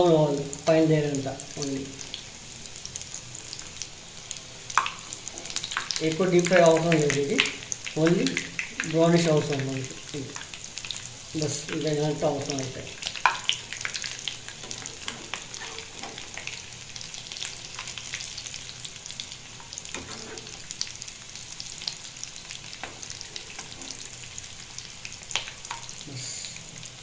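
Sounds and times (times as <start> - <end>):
chicken deep-frying in oil: 0.0 - 27.0.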